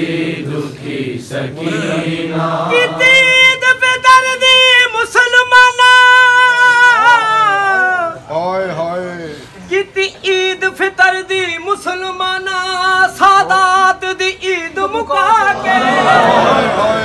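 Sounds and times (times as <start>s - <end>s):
men chanting: 0.0s - 8.2s, 10.2s - 17.0s
high male voice singing: 1.6s - 8.2s.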